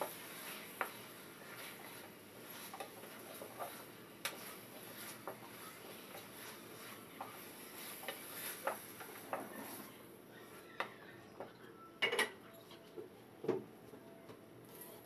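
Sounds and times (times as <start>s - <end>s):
spatula knocking and scraping pan: 0.0s - 9.8s.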